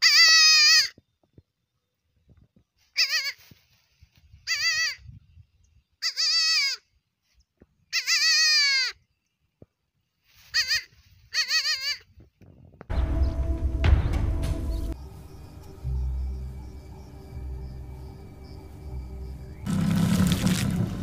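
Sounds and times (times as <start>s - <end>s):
goat kid bleating: 0.0s - 0.9s, 2.9s - 3.5s, 4.5s - 5.0s, 6.0s - 6.8s, 7.9s - 9.0s, 10.4s - 12.1s.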